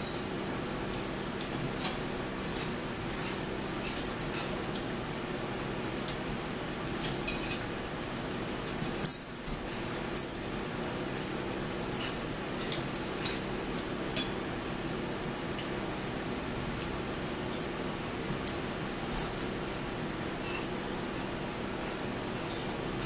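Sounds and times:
forks clinking on plates: 1.4s - 4.8s, 7.0s - 7.7s, 8.7s - 10.4s, 11.0s - 14.4s, 18.3s - 19.5s.

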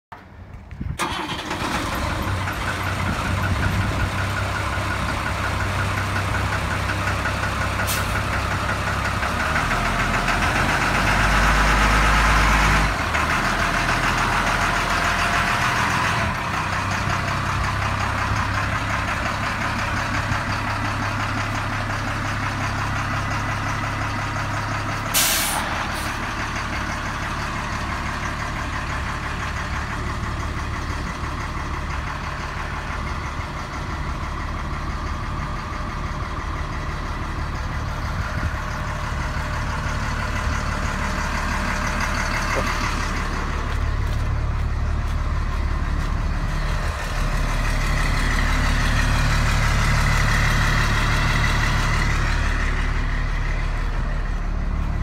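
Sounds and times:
diesel engine starting and idling: 0.1s - 55.0s
air brake hiss: 7.9s - 8.2s, 25.1s - 26.2s.

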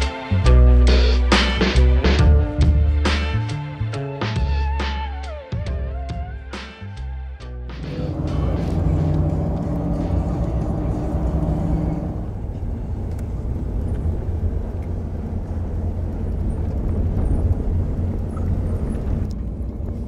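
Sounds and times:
low rumble: 7.7s - 20.0s
hum tones: 7.8s - 12.5s.

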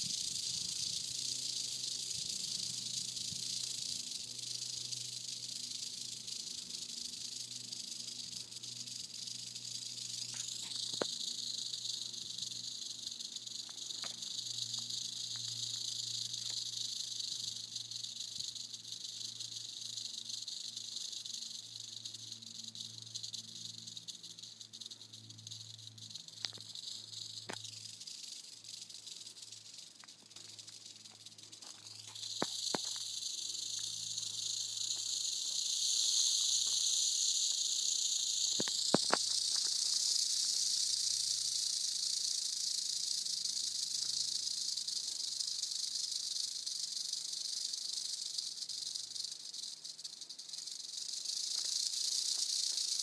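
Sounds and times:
rattlesnake rattling: 0.0s - 53.0s
faint clicks: 38.4s - 40.1s.

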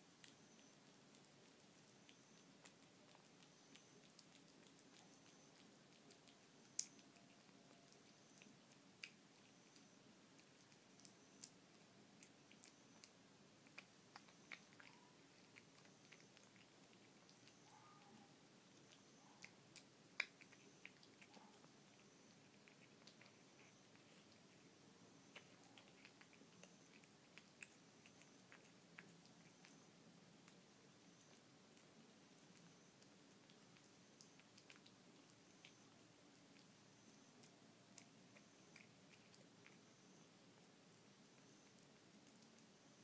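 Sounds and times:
cat chewing wet food: 0.0s - 43.0s.

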